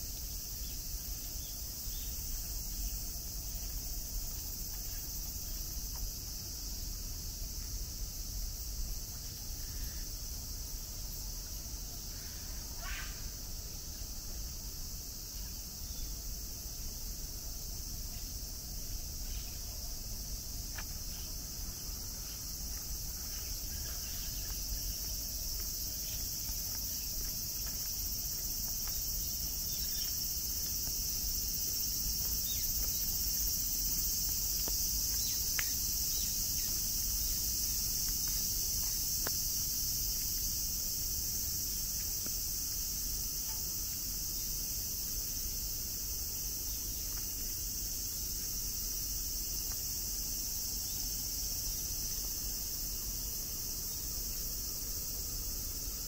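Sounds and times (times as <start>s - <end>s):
insects chorus: 0.0s - 56.0s
faint ticks: 34.0s - 36.9s, 43.4s - 44.0s.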